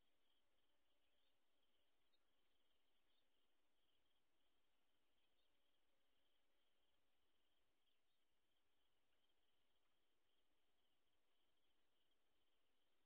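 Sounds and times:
faint insect chirring: 0.0 - 13.0.

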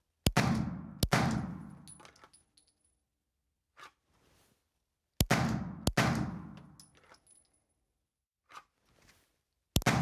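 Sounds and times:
pistol shots echoing indoors: 0.3 - 1.9, 5.2 - 6.8.

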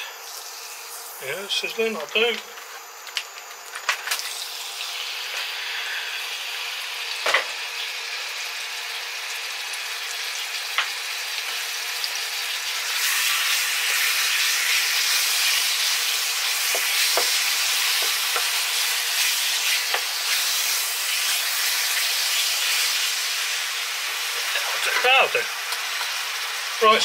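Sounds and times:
chicken sizzling in a frying pan: 0.0 - 27.0
spatula tapping a pan: 16.7 - 17.4.

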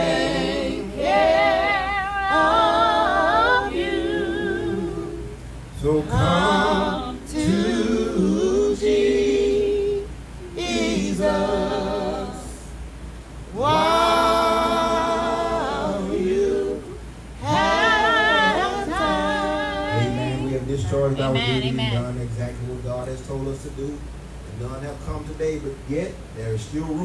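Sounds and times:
man singing unaccompanied: 4.0 - 9.6, 13.5 - 22.1.

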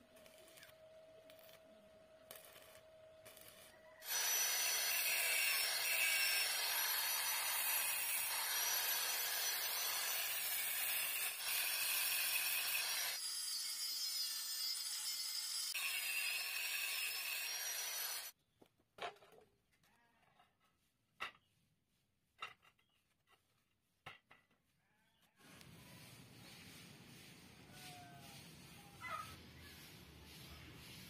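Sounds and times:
angle grinder grinding steel: 2.3 - 18.4.

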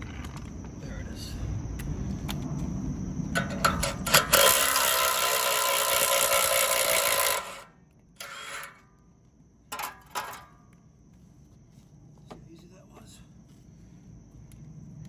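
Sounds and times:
loud steady mechanical noise: 0.0 - 15.0
fan blade scraping and clicking: 3.4 - 8.9.

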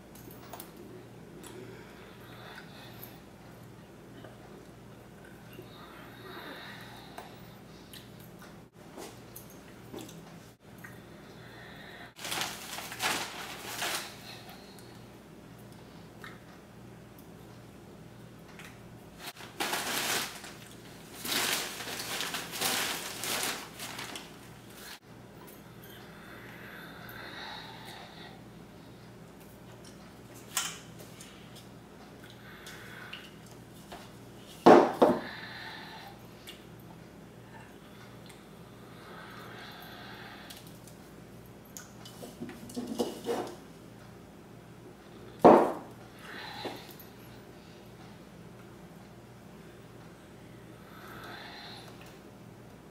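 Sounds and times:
faint steady hum: 0.0 - 52.9
plastic bag crinkling: 12.2 - 14.4, 19.3 - 25.0.

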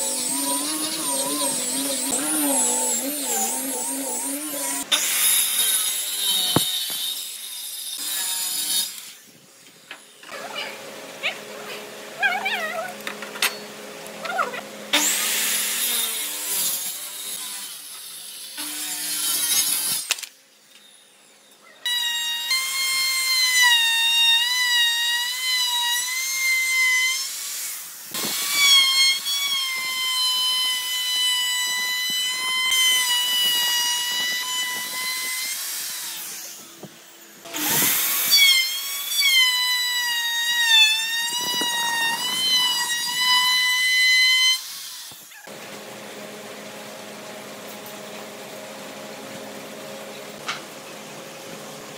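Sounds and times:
power tool motor whine: 0.0 - 7.3, 21.9 - 47.2.

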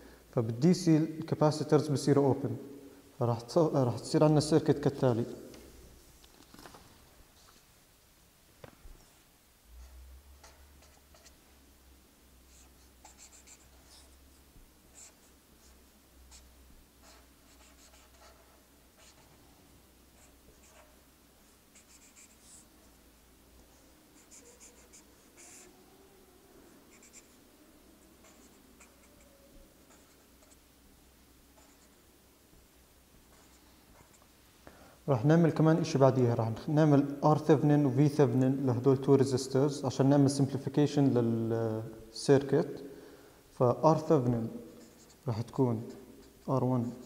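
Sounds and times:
marker pen squeaking on paper: 12.5 - 14.1, 21.7 - 22.6, 24.2 - 25.7, 26.9 - 27.4, 28.2 - 30.6.

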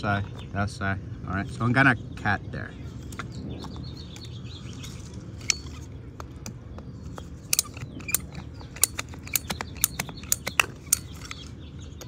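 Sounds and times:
pipe cutter clicking: 7.5 - 11.4.

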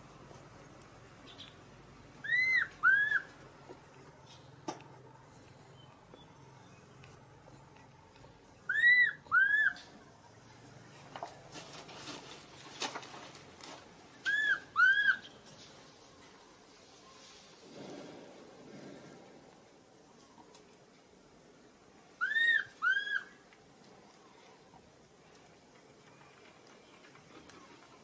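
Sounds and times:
very high squeaks: 5.2 - 5.5, 12.4 - 12.8.

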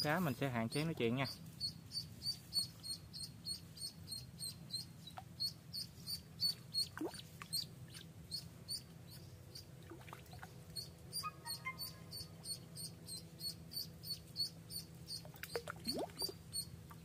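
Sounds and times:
duckling peeping: 0.5 - 17.0.

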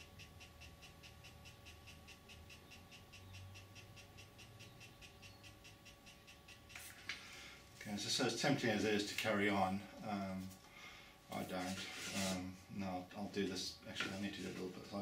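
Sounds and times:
pen feed motor ticking and whining: 0.0 - 6.9.

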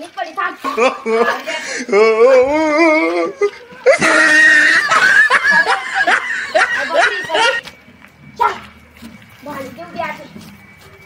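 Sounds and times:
people laughing loudly: 0.7 - 7.7
wavering vocal sound: 1.8 - 4.6.

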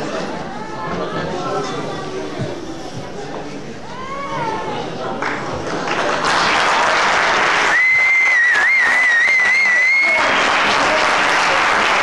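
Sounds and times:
audience applauding: 5.2 - 12.0
long high whistle: 7.7 - 10.2.

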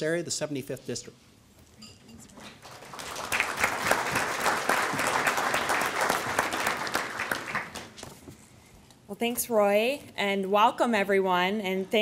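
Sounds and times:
audience applauding: 2.5 - 8.0.

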